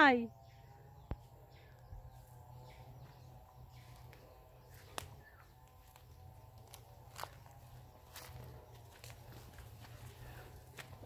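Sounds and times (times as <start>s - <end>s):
footsteps on dry leaves: 3.8s - 11.0s.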